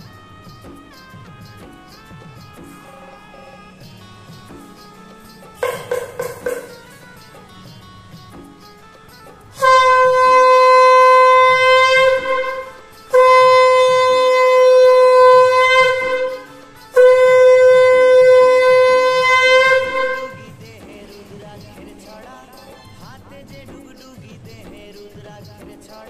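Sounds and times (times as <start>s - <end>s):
conch shell blown: 0.0s - 20.8s.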